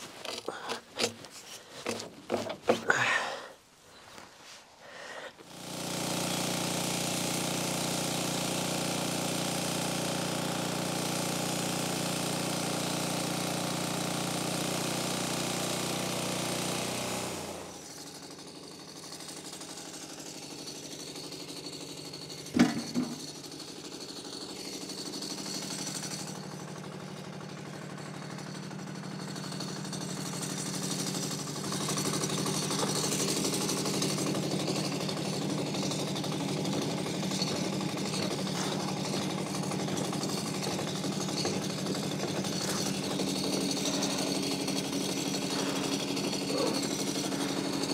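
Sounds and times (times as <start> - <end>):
wooden slab clattering: 0.0 - 3.0
sawmill engine running: 5.4 - 47.9.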